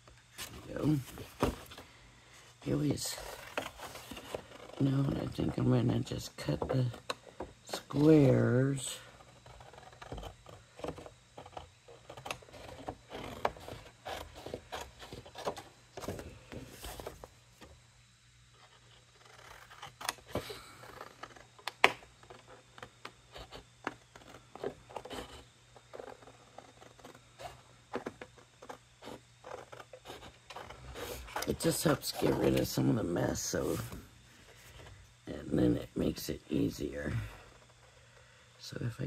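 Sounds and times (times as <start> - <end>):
paper rustling: 3.0 - 5.2, 12.4 - 17.4.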